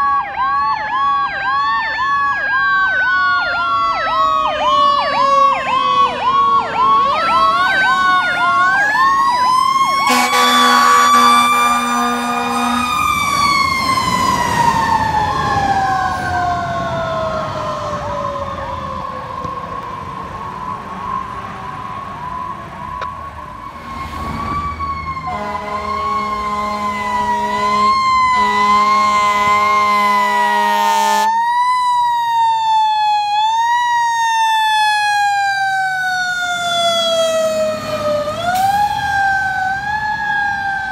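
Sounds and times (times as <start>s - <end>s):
fire engine siren wailing: 0.0s - 40.9s
siren rising and falling sweeps: 0.0s - 40.9s
air horn blasts: 10.0s - 13.4s, 25.2s - 31.4s.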